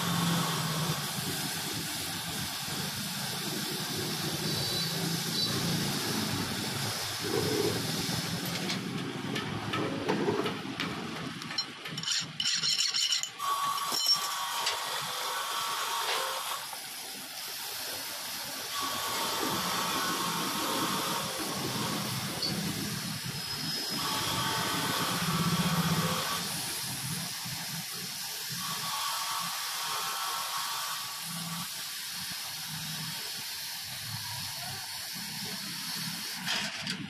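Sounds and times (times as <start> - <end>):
hot metal sizzling in water: 11.4 - 36.7.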